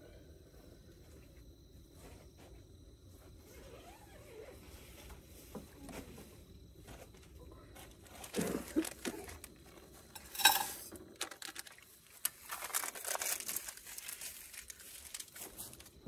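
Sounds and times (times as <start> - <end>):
paper crinkling and rustling: 7.2 - 16.0.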